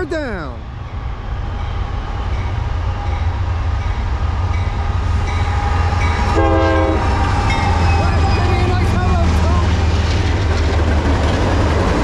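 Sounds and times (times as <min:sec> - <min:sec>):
diesel locomotive engine rumble: 0:00.0 - 0:12.0
train horn toot: 0:05.5 - 0:08.4.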